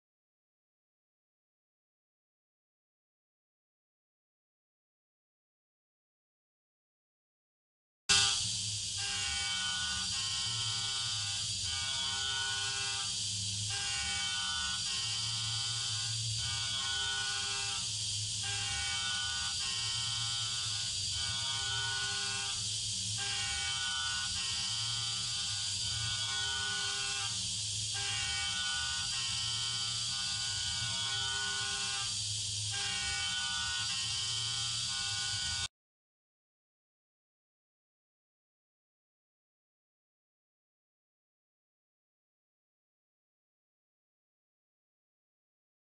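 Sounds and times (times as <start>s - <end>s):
milling machine spindle whine: 8.1s - 35.7s.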